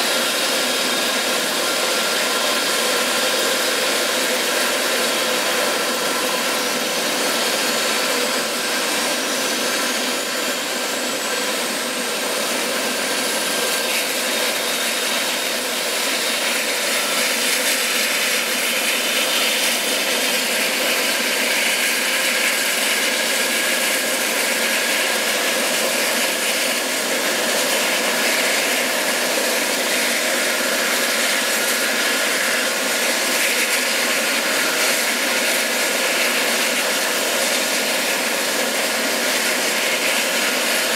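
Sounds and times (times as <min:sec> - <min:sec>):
helicopter turbine roar and whine: 0:00.0 - 0:40.9.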